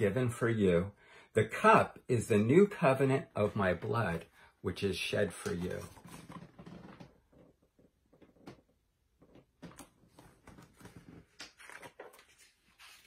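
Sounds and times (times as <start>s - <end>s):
book pages turning: 5.4s - 7.0s, 9.6s - 13.0s.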